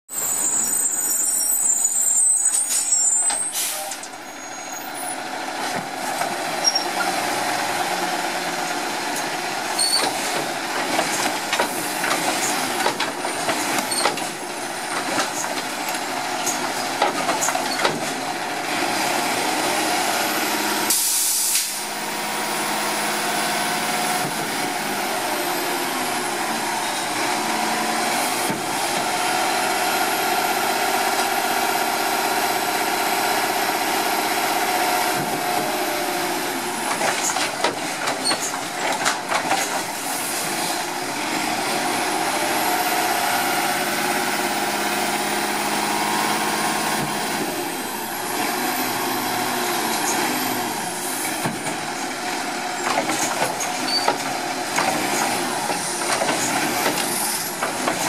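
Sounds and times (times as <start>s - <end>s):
high squeal: 0.1s - 5.2s
garbage truck engine running: 0.1s - 58.0s
knocks and clanks: 9.8s - 18.2s, 36.8s - 39.9s, 52.8s - 58.0s
air hiss burst: 20.9s - 21.8s.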